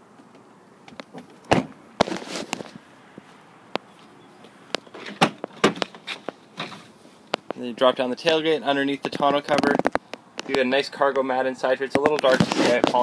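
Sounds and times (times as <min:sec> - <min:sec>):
handling noise: 0:00.0 - 0:07.7, 0:09.2 - 0:10.7, 0:11.9 - 0:13.0
footsteps: 0:12.0 - 0:13.0.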